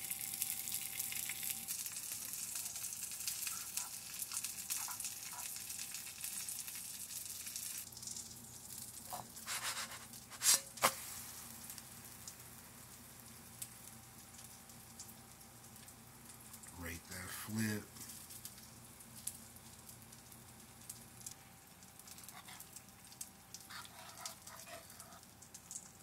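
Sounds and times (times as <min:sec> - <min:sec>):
eggs sizzling in frying pan: 0:00.0 - 0:26.0
pancake sizzling: 0:00.0 - 0:26.0
fork stirring in pan: 0:02.7 - 0:06.0, 0:09.0 - 0:11.1, 0:22.1 - 0:25.8.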